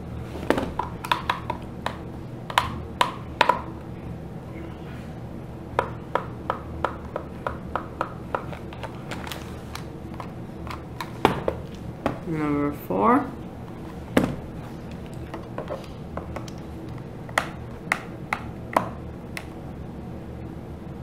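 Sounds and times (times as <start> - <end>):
plastic case knocking on table: 14.2 - 14.4.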